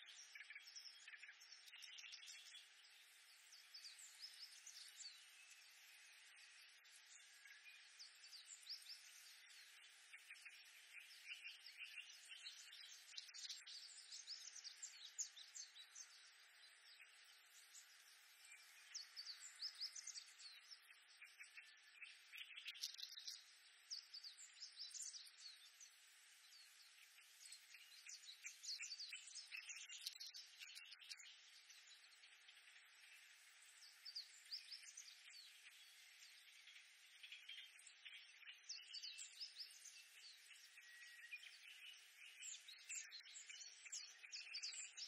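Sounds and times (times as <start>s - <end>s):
faint steady hiss: 0.0s - 45.0s.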